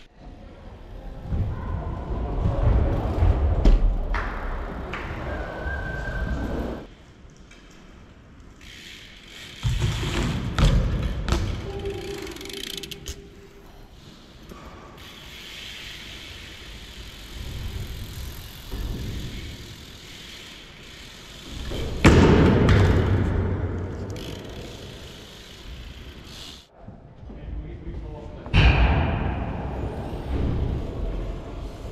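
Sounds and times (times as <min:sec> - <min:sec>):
bike wheels landing thuds: 0:18.6 - 0:19.7, 0:21.6 - 0:23.9.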